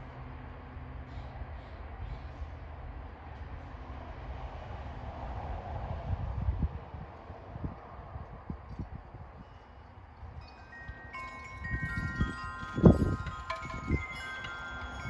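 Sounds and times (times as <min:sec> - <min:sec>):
wind chime ringing: 0:10.3 - 0:15.0.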